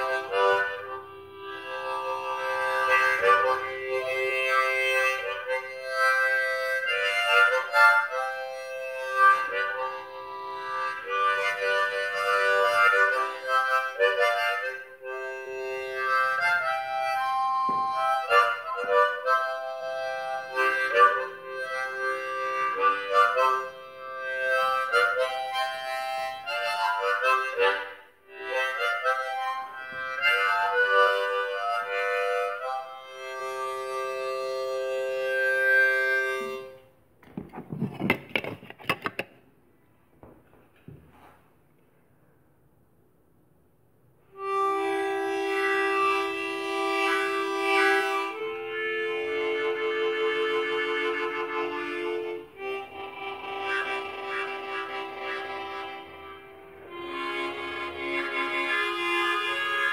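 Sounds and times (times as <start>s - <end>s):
harmonica playing: 0.0s - 37.0s, 44.3s - 59.9s.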